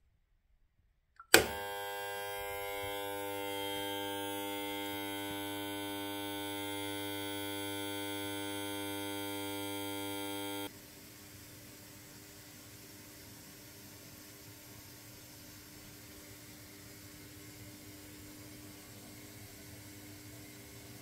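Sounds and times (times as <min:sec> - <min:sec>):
push-button switch click: 0:01.2 - 0:01.9
washing machine buzzer: 0:01.2 - 0:10.7.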